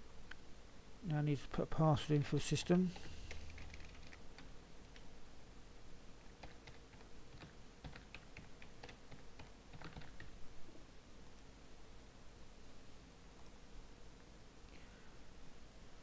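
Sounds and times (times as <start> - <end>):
keyboard typing: 2.9 - 5.1, 6.4 - 10.3.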